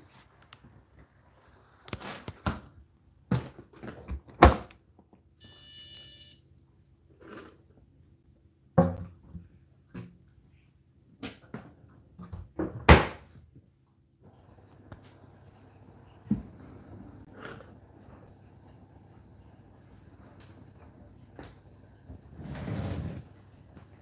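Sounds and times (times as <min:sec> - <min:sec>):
electronic beep: 0:05.4 - 0:06.4.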